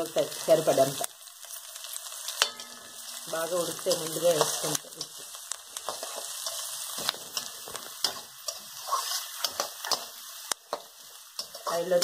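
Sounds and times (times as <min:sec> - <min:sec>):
onions sizzling in hot oil: 0:00.0 - 0:12.0
spoon scraping pan: 0:03.8 - 0:12.0.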